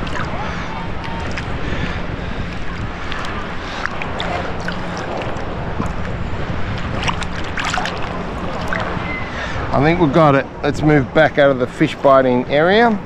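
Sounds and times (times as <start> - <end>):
seawater sloshing: 0.0 - 10.2.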